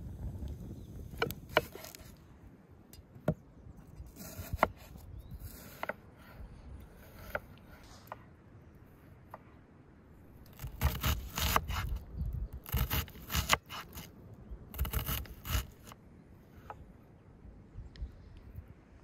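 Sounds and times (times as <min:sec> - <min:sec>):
rough scraping: 0:01.1 - 0:02.3, 0:03.9 - 0:08.2, 0:12.6 - 0:14.1, 0:14.8 - 0:16.0.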